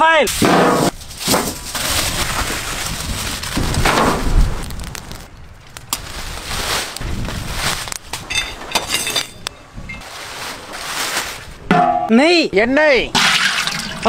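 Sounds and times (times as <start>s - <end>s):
aluminium foil crinkling: 0.9s - 8.6s
wind rumble on microphone: 0.9s - 10.1s.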